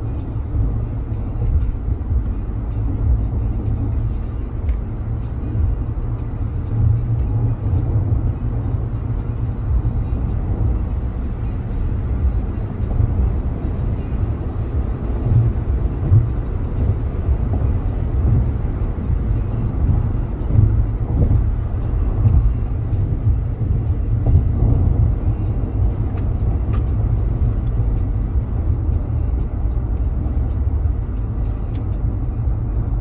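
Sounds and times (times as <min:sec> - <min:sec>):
car rumbling with road noise: 0:00.0 - 0:33.0.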